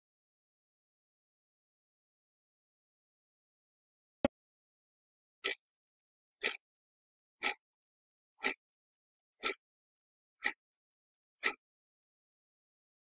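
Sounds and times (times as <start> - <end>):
alarm clock ticking: 10.4 - 10.6.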